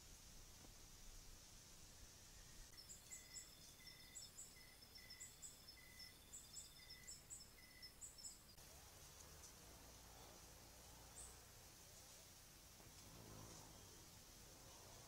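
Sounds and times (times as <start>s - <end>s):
night insects chirping: 2.2s - 8.7s
insect trill: 2.3s - 8.6s.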